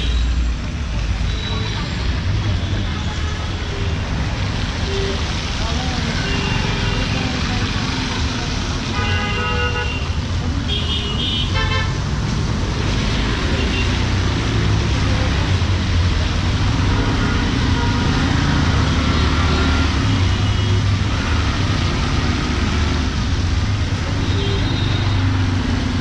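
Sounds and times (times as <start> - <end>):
vehicle engines droning: 0.0 - 9.0, 12.0 - 26.0
tyres hissing on wet road: 0.2 - 9.4, 12.0 - 26.0.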